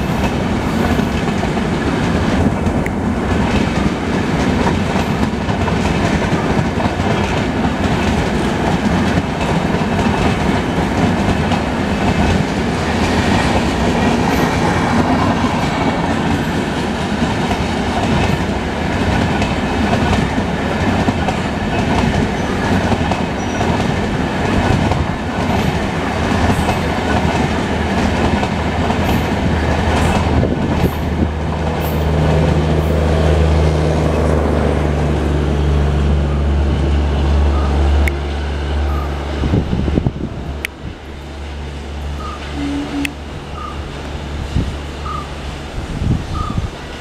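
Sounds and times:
wheels clicking over rail joints: 0.0s - 32.1s
train rolling past: 0.0s - 47.0s.

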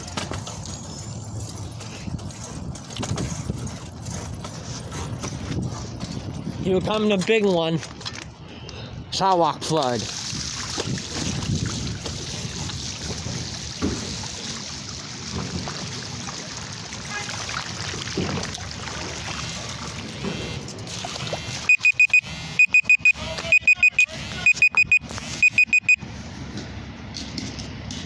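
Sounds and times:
high electronic beeps: 21.6s - 26.0s.

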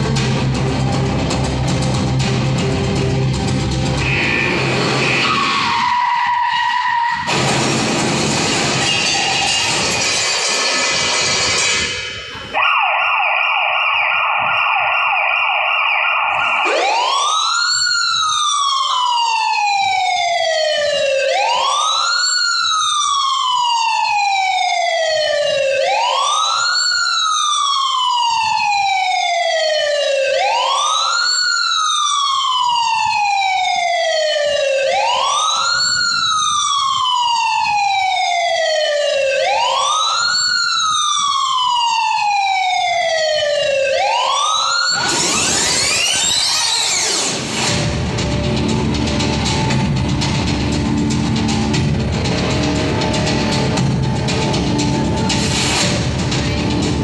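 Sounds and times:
emergency siren: 1.4s - 57.0s.

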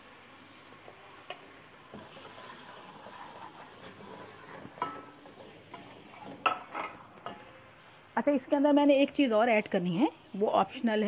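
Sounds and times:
food sizzling in hot oil: 0.0s - 11.0s
spoon knocking on pot: 4.8s - 5.2s.

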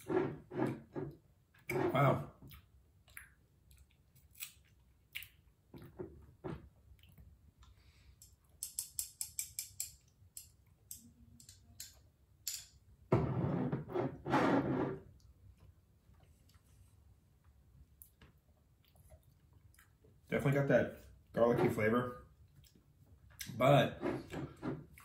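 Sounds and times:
mouth clicks and smacks: 2.4s - 5.5s.

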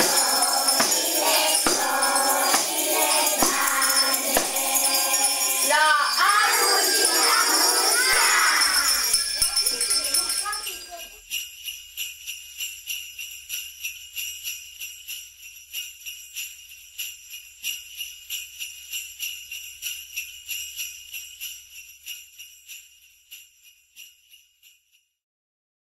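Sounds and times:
jingle bells shaking: 0.0s - 25.2s.

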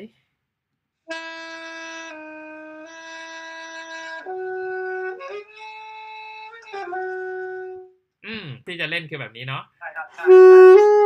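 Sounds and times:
saxophone long held notes: 1.1s - 7.9s, 10.2s - 11.0s.

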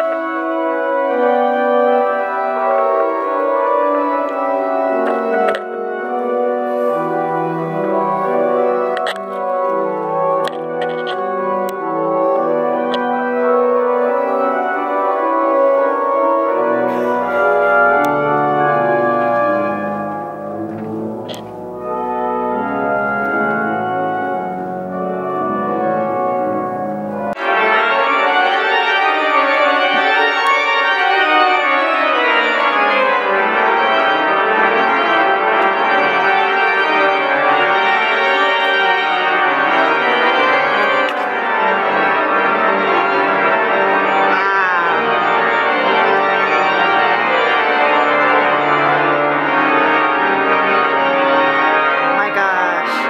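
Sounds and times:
pipe organ playing chords: 0.0s - 53.0s.

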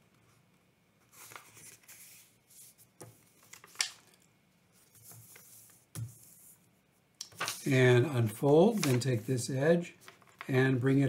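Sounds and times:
paper rustling as folded: 1.1s - 4.1s, 7.2s - 9.4s, 10.0s - 10.5s.

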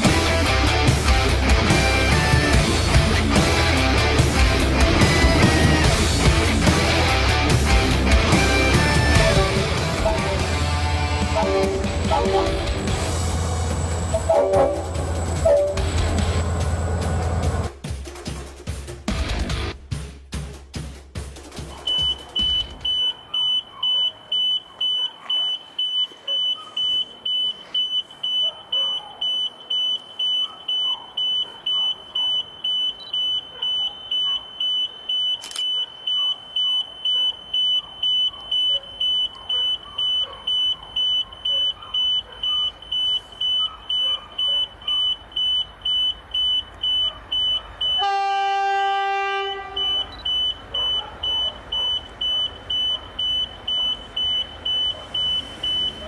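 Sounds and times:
crossing warning bell dinging: 7.9s - 17.6s, 21.9s - 56.0s
train horn blast: 9.1s - 16.5s, 48.0s - 50.0s.

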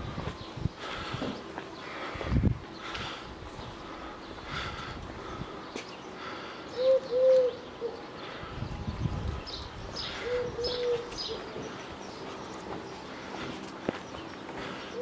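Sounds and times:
small birds chirping: 0.0s - 15.0s
dove cooing: 6.8s - 8.1s, 10.0s - 11.7s.

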